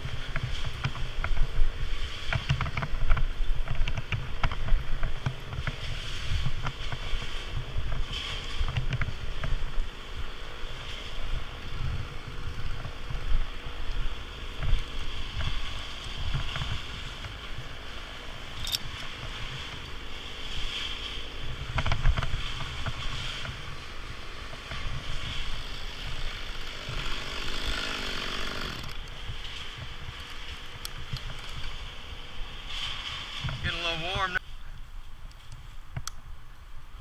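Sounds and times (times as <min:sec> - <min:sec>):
rope pulled through gloved hands: 0:00.0 - 0:34.4
wind buffeting microphone: 0:00.0 - 0:37.0.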